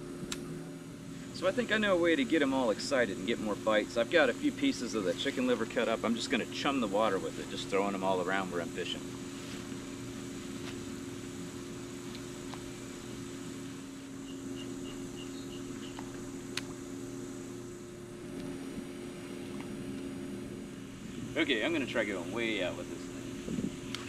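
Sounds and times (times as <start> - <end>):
low hum: 0.0 - 24.0
faint high chirps: 14.2 - 16.0.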